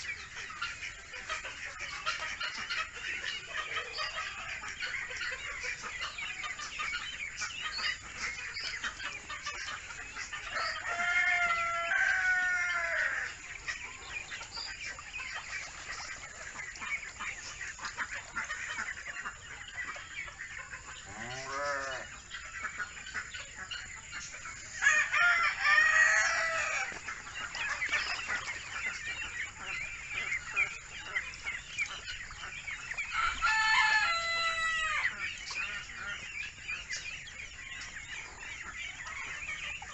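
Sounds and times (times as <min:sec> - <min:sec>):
ducklings peeping: 0:00.0 - 0:39.9
rooster crowing: 0:10.6 - 0:13.2, 0:21.1 - 0:22.0, 0:24.8 - 0:26.9, 0:33.2 - 0:35.0.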